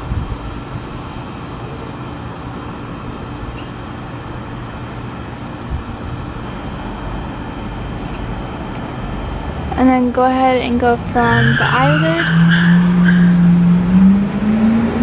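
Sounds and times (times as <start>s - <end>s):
wind on microphone: 0.0s - 0.9s, 5.6s - 6.3s
road traffic: 0.0s - 15.0s.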